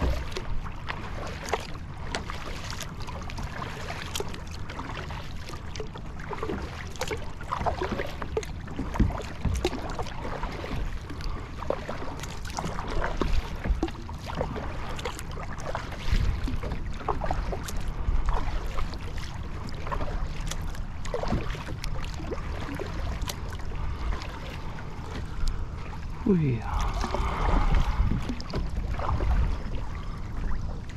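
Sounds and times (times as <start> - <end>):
water splashing around kayak: 0.0 - 30.9
wind rumble on microphone: 12.3 - 30.9.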